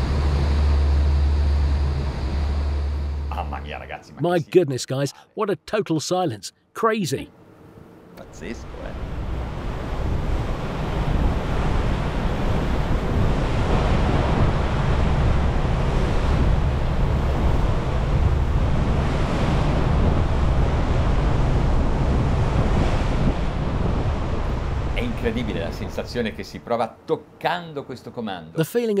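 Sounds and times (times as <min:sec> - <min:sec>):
water rushing along hull: 0:00.0 - 0:04.0, 0:07.4 - 0:27.4
wind buffeting microphone: 0:08.6 - 0:26.5.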